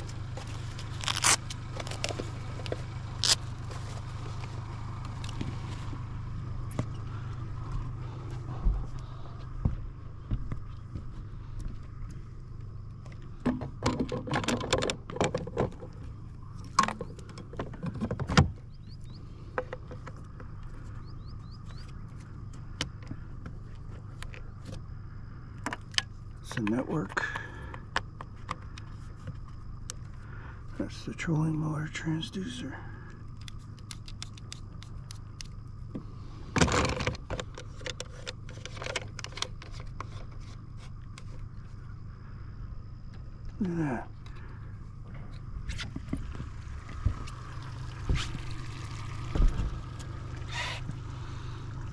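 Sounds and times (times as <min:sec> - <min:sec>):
steady low hum: 0:00.0 - 0:51.9
gear clattering on boat deck: 0:13.4 - 0:16.0
plastic clatter: 0:13.4 - 0:16.0, 0:36.6 - 0:40.5
bird chirps: 0:18.6 - 0:19.5, 0:20.6 - 0:22.3
plastic clicks and rattles: 0:36.6 - 0:40.2.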